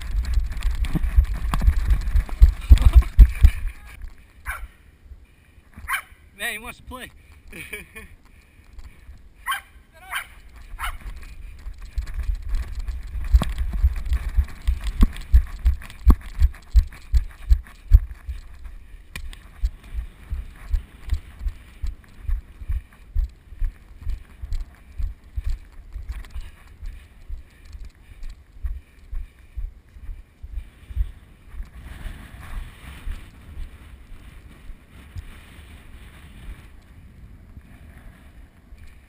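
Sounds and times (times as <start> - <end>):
air rushing on camera housing: 0.0 - 3.8
muffled running footfalls: 0.0 - 4.2, 10.5 - 31.8.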